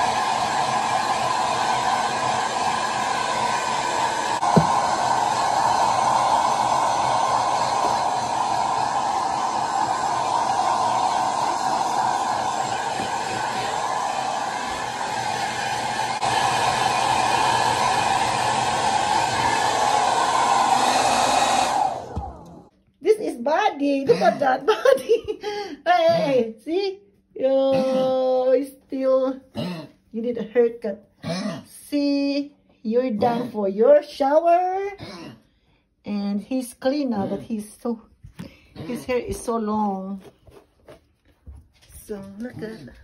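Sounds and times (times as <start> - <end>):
hair dryer blowing: 0.0 - 22.7.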